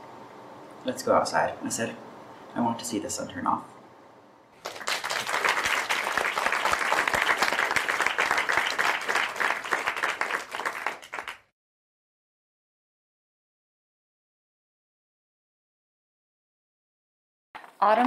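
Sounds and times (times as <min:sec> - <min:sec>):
applause: 0:04.6 - 0:11.5.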